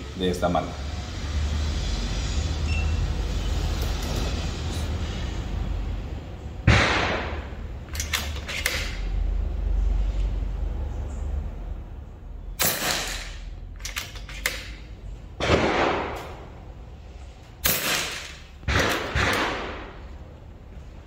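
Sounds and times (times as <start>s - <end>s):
air rifle shots: 6.6s - 9.1s, 12.6s - 16.6s, 17.6s - 20.0s.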